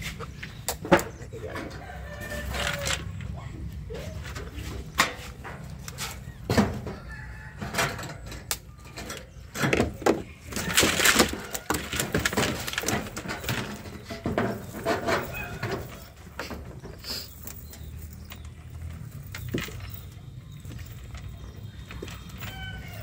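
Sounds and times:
net mesh rustling and scraping: 10.5s - 16.2s.

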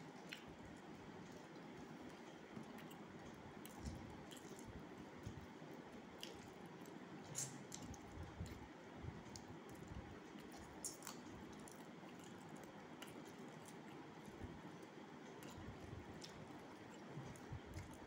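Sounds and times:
person chewing food: 0.0s - 18.0s
wet mouth clicks: 7.3s - 7.9s.

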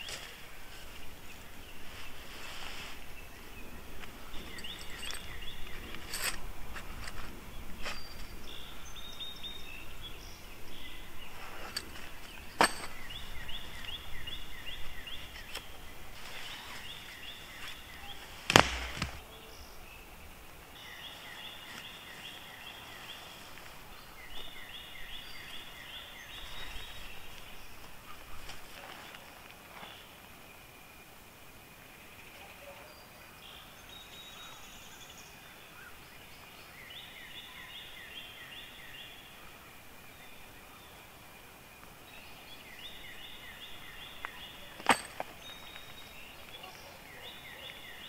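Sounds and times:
sharp snaps: 18.4s - 19.2s.

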